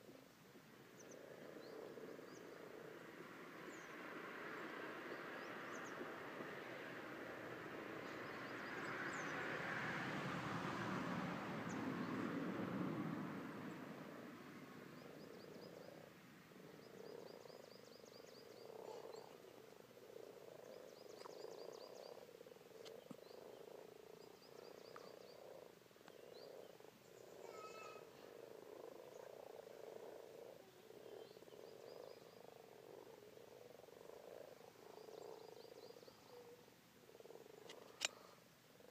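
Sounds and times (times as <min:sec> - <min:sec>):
frogs croaking: 0:00.0 - 0:38.9
high rapid frog trills: 0:15.0 - 0:36.5.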